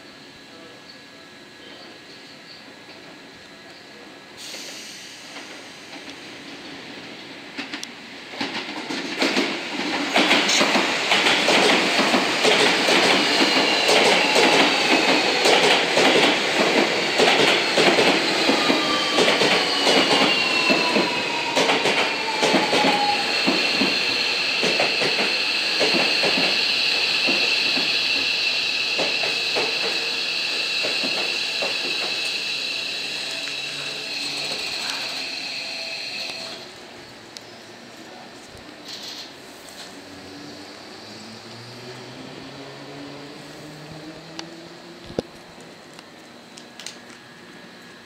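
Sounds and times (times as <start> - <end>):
train braking: 0.0 - 45.3
train wheels clacking over rail joints: 7.5 - 23.9, 24.6 - 28.3, 28.9 - 30.1.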